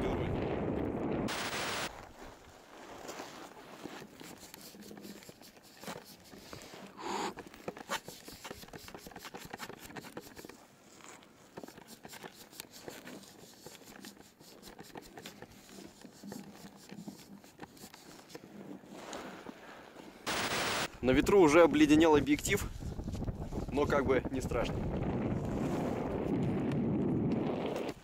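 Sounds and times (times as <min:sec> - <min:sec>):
fingers scraping camera lens: 0:04.0 - 0:18.9.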